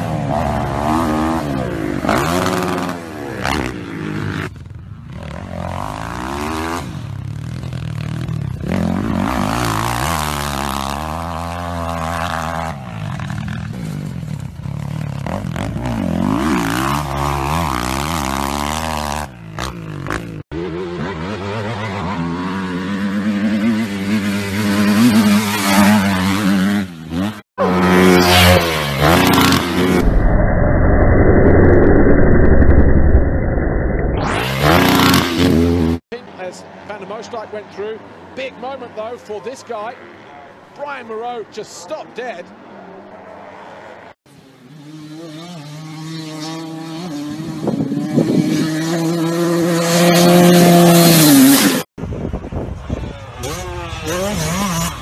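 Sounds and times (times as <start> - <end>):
dirt bike engines revving: 0.0 - 30.1, 34.2 - 55.0.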